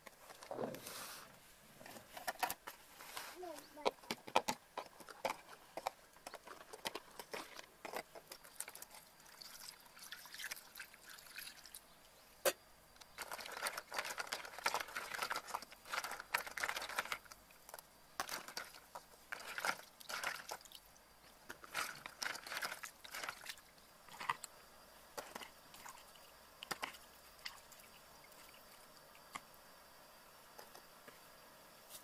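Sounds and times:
eggshells clicking and knocking: 3.6s - 9.4s, 13.0s - 20.8s, 25.2s - 29.5s
small crackling: 12.4s - 29.6s.

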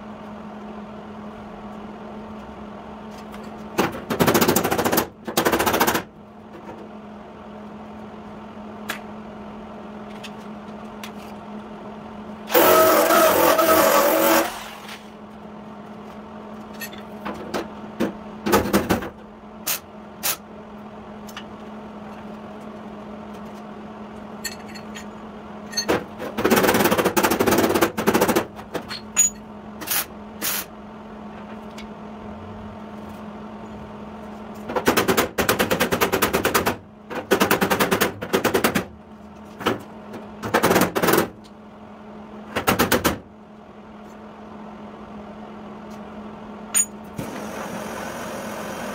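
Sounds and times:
pneumatic hammer on sheet steel: 12.5s - 15.0s, 19.6s - 20.4s, 29.2s - 30.7s.

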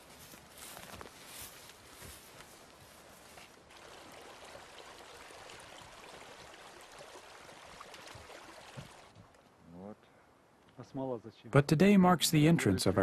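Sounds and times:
stream running over stones: 3.4s - 9.2s.

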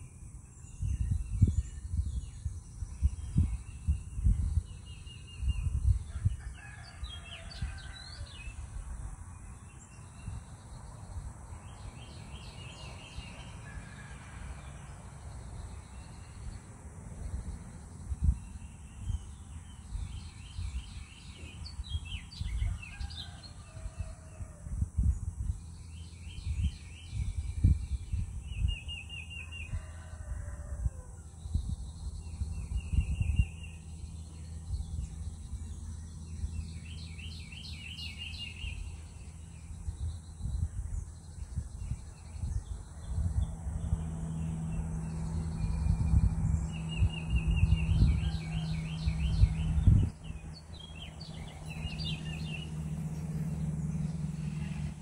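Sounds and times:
birds chirping: 31.5s - 55.0s.

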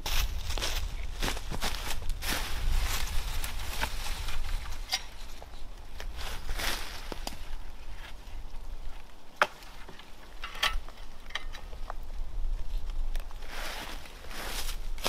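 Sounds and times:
footsteps shuffling through dry leaves: 0.0s - 5.4s, 6.1s - 7.6s, 13.4s - 15.0s.

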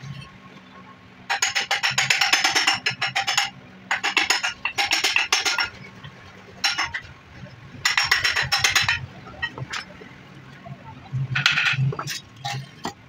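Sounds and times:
hammer striking metal cover: 1.3s - 5.7s, 6.6s - 7.1s, 7.8s - 9.9s.

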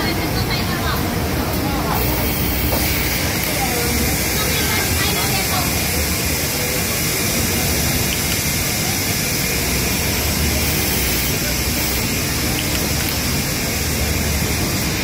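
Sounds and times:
faint voices: 0.0s - 13.9s.

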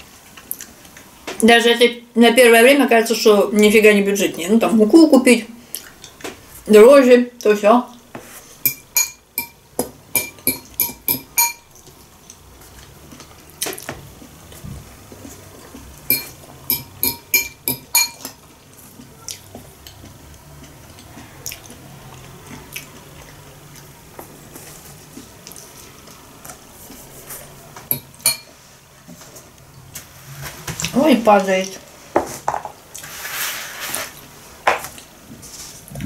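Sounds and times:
spoon clinking against glass bowl: 8.7s - 9.6s, 10.2s - 11.7s, 16.1s - 18.3s, 27.9s - 28.5s.

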